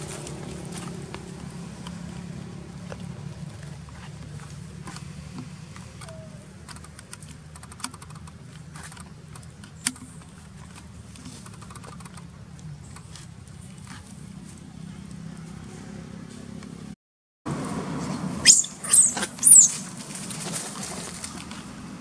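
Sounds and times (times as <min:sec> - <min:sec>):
sharp clicks: 0:05.9 - 0:13.1.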